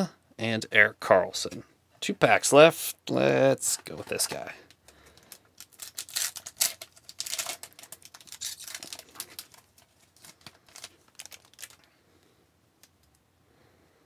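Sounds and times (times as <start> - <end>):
wrapper crinkling and tearing: 5.1 - 12.0.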